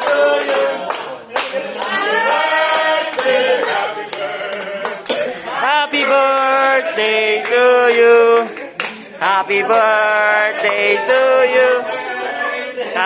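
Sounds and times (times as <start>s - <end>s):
hands clapping: 0.0s - 5.3s, 5.9s - 10.9s
group of people singing: 0.0s - 13.0s.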